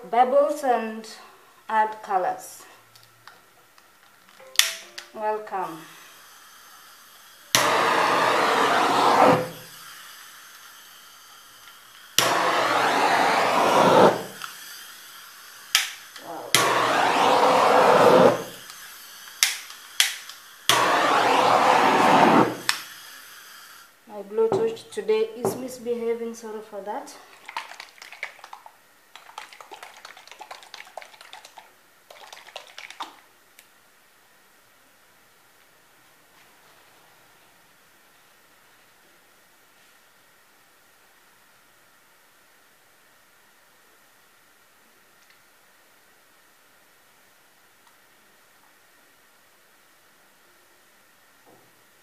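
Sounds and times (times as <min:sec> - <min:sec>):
electric hot-air blower: 0:05.6 - 0:24.0.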